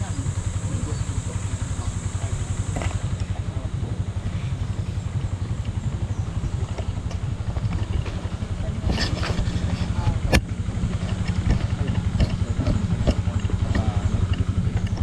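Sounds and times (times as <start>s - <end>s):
engine idling: 0.0s - 15.0s
light clatters: 4.1s - 15.0s.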